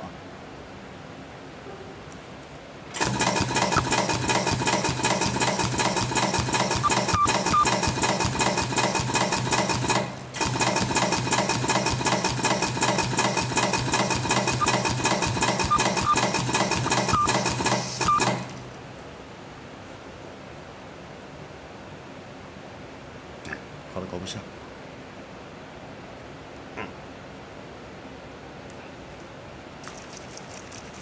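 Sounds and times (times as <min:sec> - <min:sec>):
machine rapid mechanical clatter: 0:03.0 - 0:18.8, 0:29.8 - 0:31.0.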